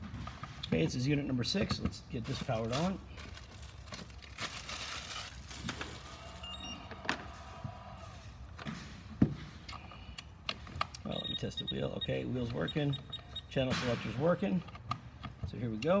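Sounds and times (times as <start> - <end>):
rustling: 2.3 - 6.3.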